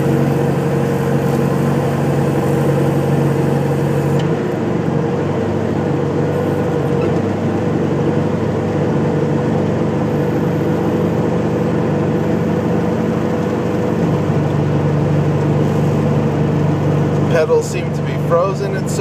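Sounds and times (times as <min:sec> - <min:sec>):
diesel engine idling: 0:00.0 - 0:19.0.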